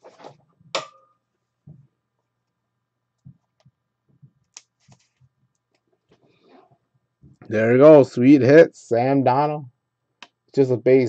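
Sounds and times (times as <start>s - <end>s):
trading cards handled on table: 4.8s - 5.3s.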